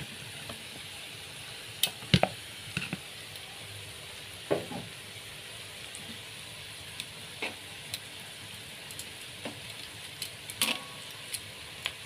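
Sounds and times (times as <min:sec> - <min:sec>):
food sizzling: 0:00.0 - 0:12.0
utensil knocking and scraping: 0:02.2 - 0:03.0.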